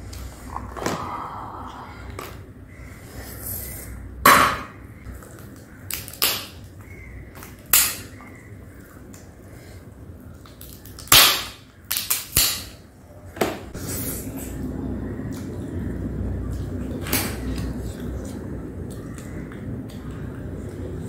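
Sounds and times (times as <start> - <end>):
crab shell cracking: 5.2 - 6.6.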